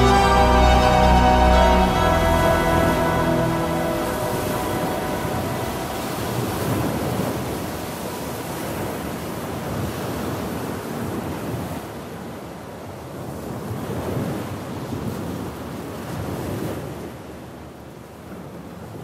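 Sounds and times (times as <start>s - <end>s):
waves surging: 0.0s - 12.5s
wind: 0.0s - 19.0s.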